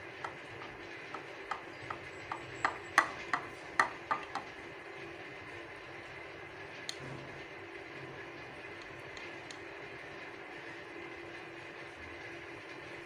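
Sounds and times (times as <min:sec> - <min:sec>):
faint background hum: 0:00.0 - 0:13.0
spatula tapping in glass dish: 0:00.2 - 0:04.5.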